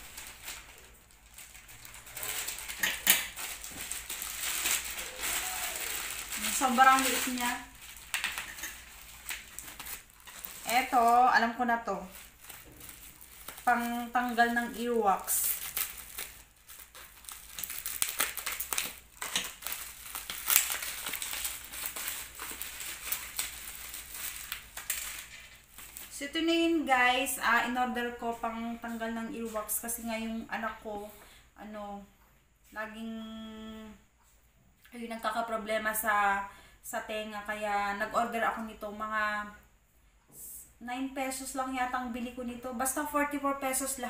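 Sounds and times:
plastic pouch crinkling: 0.0 - 26.2
scissors cutting plastic: 15.4 - 25.5.

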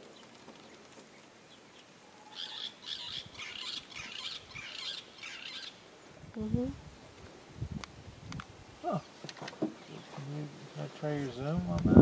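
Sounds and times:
birds chirping: 0.0 - 6.1, 8.8 - 11.5.

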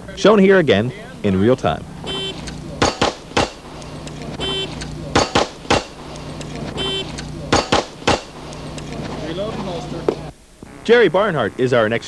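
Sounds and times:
shot timer beep: 2.0 - 3.0, 4.4 - 5.4, 6.8 - 7.7
pistol shots: 2.0 - 3.8, 4.6 - 8.6.

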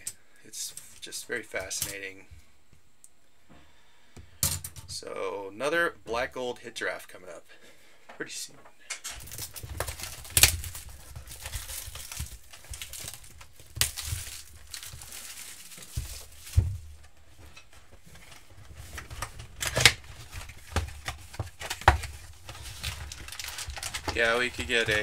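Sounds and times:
card packs being handled: 9.2 - 25.0
plastic wrap tearing and crinkling: 9.2 - 25.0.

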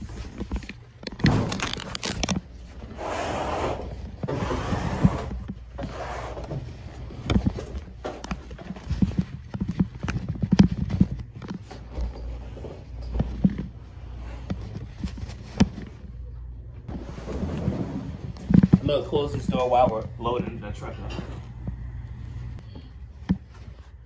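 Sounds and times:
furniture rubbing: 1.2 - 16.0, 16.9 - 19.9.

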